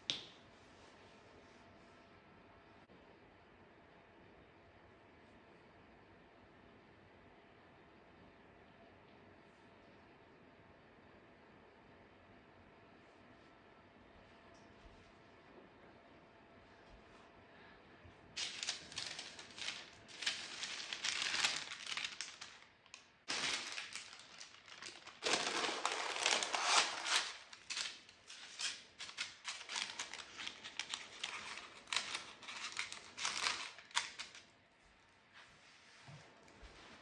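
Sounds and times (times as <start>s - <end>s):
baking parchment rustling: 18.3s - 34.6s.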